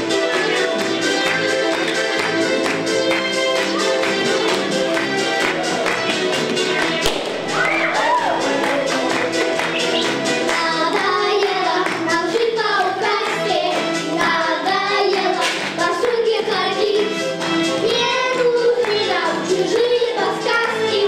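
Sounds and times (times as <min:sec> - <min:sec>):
backing music with steady beat: 0:00.0 - 0:21.0
children singing: 0:08.4 - 0:21.0.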